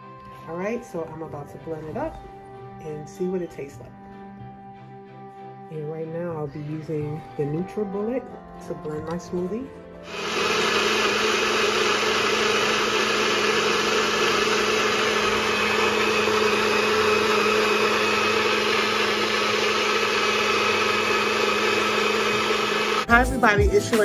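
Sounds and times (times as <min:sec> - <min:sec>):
blender motor whirring: 0:10.0 - 0:23.1.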